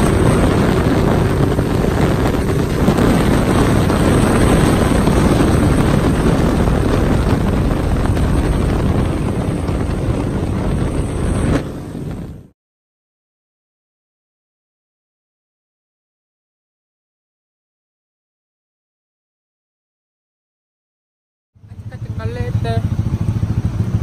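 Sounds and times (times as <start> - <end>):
motorcycle engine: 0.0 - 12.5, 21.6 - 24.0
road noise: 0.0 - 12.5, 21.6 - 24.0
wind on microphone: 0.0 - 12.5.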